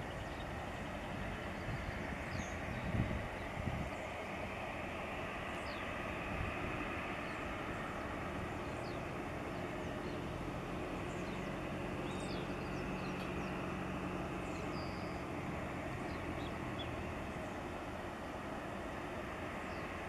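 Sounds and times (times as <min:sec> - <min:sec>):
jet engines running: 0:00.0 - 0:20.0.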